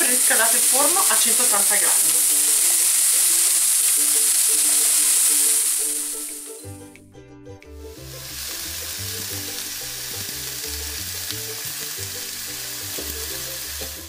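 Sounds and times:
meat sizzling in frying pan: 0:00.0 - 0:06.6, 0:07.9 - 0:14.0
background music with bass: 0:06.1 - 0:14.0.

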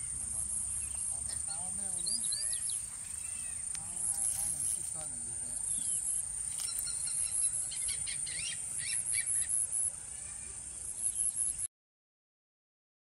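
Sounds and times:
bird chirps: 0:00.0 - 0:11.7
insects buzzing: 0:00.0 - 0:11.7
pulsing insect trill: 0:00.0 - 0:11.7.

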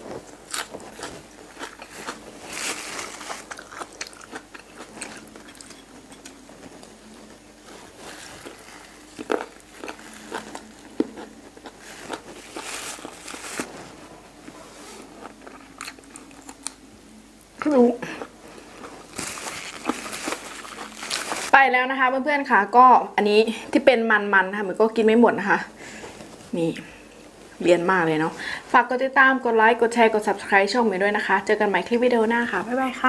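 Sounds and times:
chewing crunchy cartilage: 0:00.5 - 0:06.9, 0:08.1 - 0:13.7, 0:15.2 - 0:16.8, 0:18.0 - 0:21.5.

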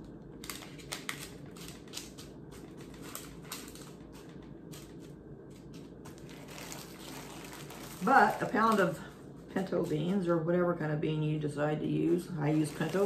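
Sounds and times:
plastic bag crinkling: 0:00.3 - 0:09.9, 0:12.1 - 0:13.0
dried beans clicking and rattling: 0:00.4 - 0:05.0, 0:12.4 - 0:13.0.

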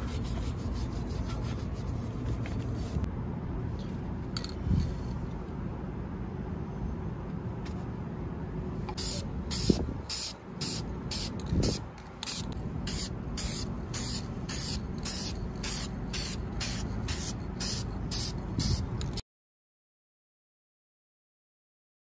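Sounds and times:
spray paint can hissing: 0:08.9 - 0:19.2.

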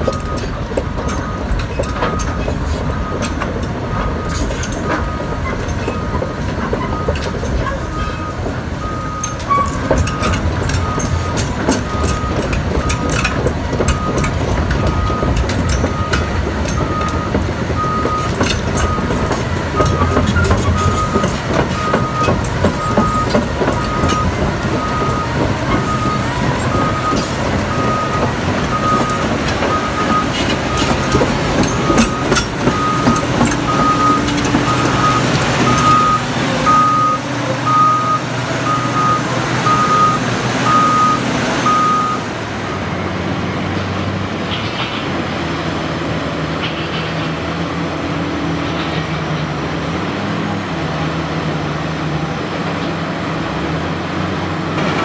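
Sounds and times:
excavator travel alarm beeps: 0:00.0 - 0:43.0
track links clanking: 0:00.0 - 0:43.0
diesel engine running: 0:00.0 - 0:55.0.

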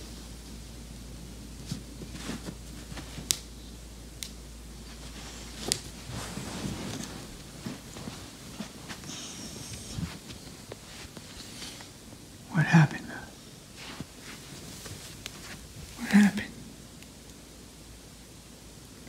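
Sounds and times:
towel and fabric rustling: 0:00.0 - 0:03.5, 0:04.6 - 0:12.3, 0:13.6 - 0:16.2
low steady hum: 0:00.0 - 0:19.0.

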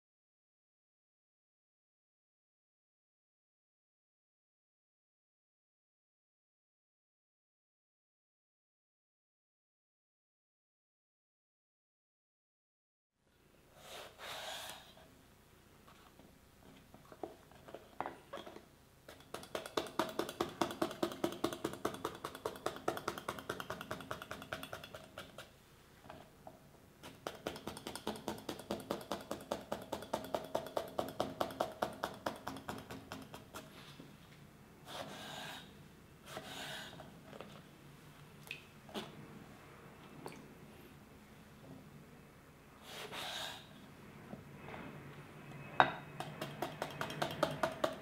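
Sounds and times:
knife scoring eggplant on wooden board: 0:19.1 - 0:25.5.

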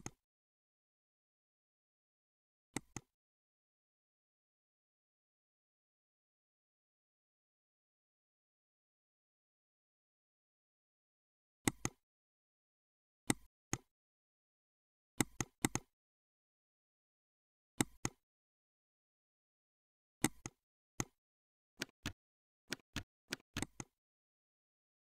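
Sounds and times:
computer mouse clicking: 0:02.8 - 0:03.1, 0:11.7 - 0:12.0, 0:15.2 - 0:15.9, 0:17.8 - 0:18.2, 0:20.2 - 0:21.2, 0:21.8 - 0:23.9.

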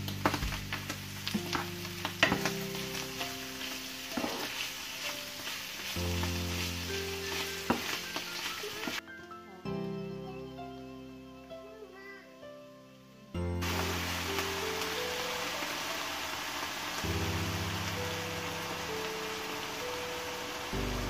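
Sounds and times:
chicken sizzling in frying pan: 0:00.0 - 0:09.0, 0:13.6 - 0:21.0
wooden spoon scraping a pan: 0:00.2 - 0:09.0.

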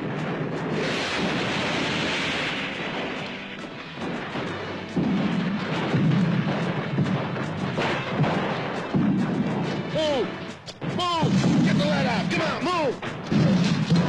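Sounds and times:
background music: 0:00.0 - 0:14.0
explosions: 0:00.0 - 0:14.0
gunfire: 0:00.0 - 0:14.0.

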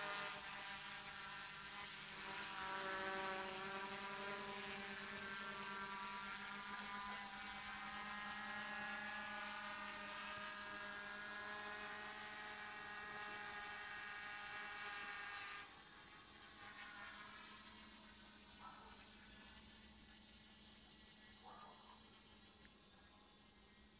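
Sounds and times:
quadcopter motors whining: 0:00.0 - 0:23.9.

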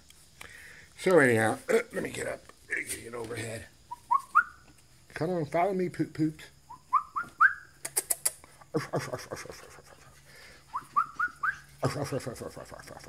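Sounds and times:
person whistling rising notes: 0:06.9 - 0:07.7, 0:10.7 - 0:11.7
sharp clicks: 0:07.3 - 0:08.5.

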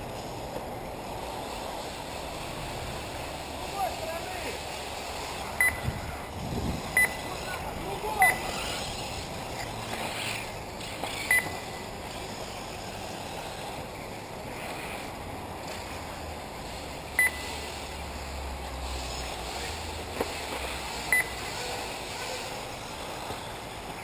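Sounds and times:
electric buggies on track: 0:00.0 - 0:24.0
wind: 0:00.0 - 0:24.0
short high electronic beeps: 0:05.6 - 0:05.9, 0:07.0 - 0:07.3, 0:11.2 - 0:11.7, 0:17.2 - 0:17.6, 0:21.1 - 0:21.4.

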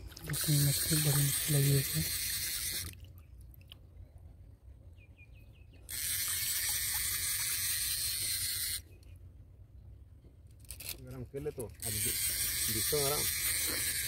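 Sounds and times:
fishing reel drag hissing: 0:00.3 - 0:02.9, 0:05.9 - 0:08.9, 0:11.6 - 0:14.0.

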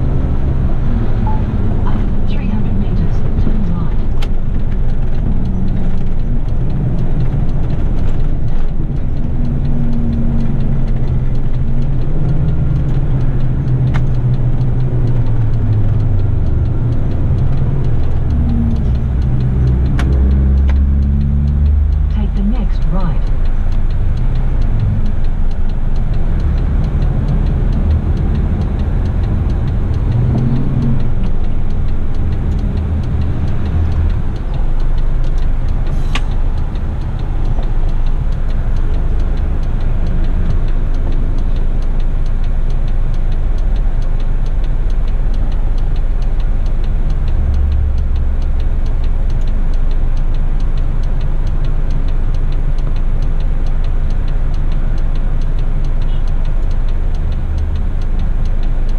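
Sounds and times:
truck diesel engine rumbling: 0:00.0 - 0:58.9
sharp click: 0:29.0 - 0:39.0.

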